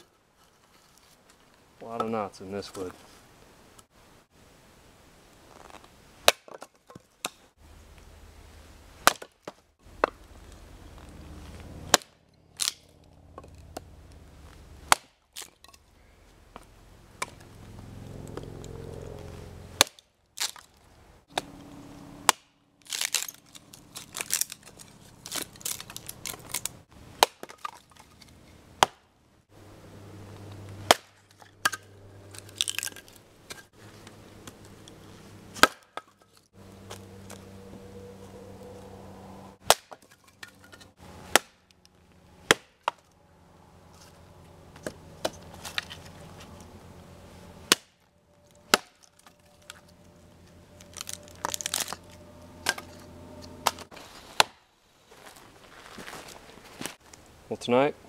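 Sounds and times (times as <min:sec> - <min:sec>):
axe chopping wood: 0:06.2 - 0:07.4, 0:09.0 - 0:10.2, 0:11.9 - 0:12.8, 0:14.9 - 0:15.5, 0:19.8 - 0:20.6, 0:22.2 - 0:23.3, 0:27.2 - 0:27.8, 0:28.8 - 0:29.1, 0:30.8 - 0:31.8, 0:35.6 - 0:36.2, 0:39.6 - 0:40.5, 0:41.2 - 0:41.7, 0:42.4 - 0:43.0, 0:47.7 - 0:48.0, 0:48.7 - 0:49.1, 0:53.6 - 0:54.6
wood cracking: 0:09.0 - 0:15.8, 0:19.8 - 0:21.4, 0:22.2 - 0:29.0, 0:30.5 - 0:33.7, 0:39.6 - 0:43.2, 0:47.7 - 0:53.0.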